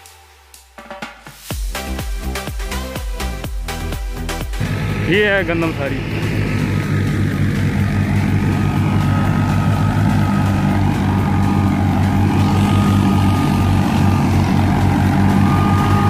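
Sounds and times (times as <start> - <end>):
engine drone: 3.3 - 16.0
thin high whine: 4.6 - 16.0.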